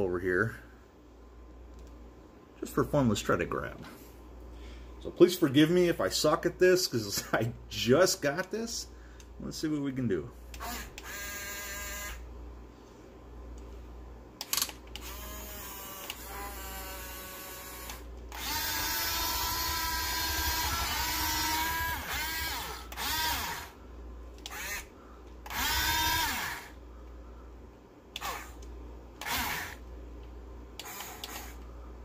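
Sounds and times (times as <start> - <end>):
electric motors whining: 10.6 - 12.2, 14.5 - 23.8, 24.4 - 26.8, 28.1 - 29.8, 30.8 - 31.7.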